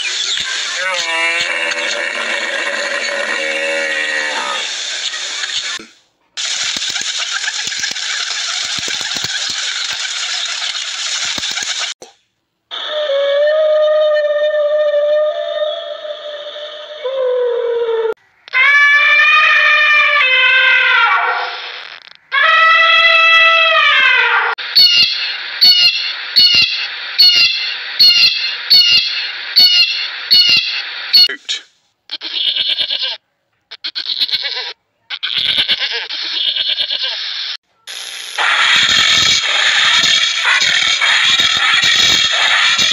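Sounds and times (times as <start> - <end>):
blue jay jeer call: 24.7 - 31.3.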